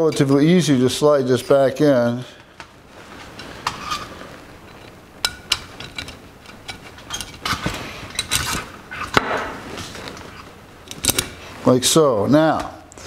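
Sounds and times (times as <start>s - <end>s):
light metal clicks and scrapes: 3.1s - 11.4s.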